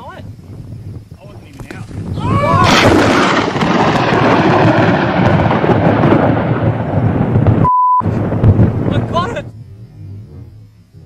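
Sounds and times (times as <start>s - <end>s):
thunder rolling rumble: 0.2s - 11.0s
steady beep: 7.6s - 8.0s.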